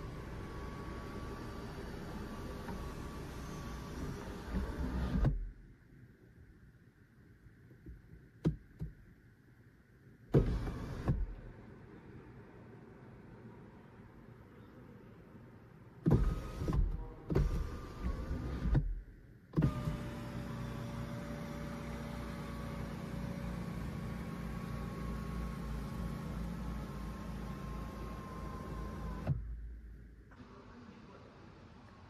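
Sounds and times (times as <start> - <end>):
electric motor humming and whining: 19.6 - 29.4.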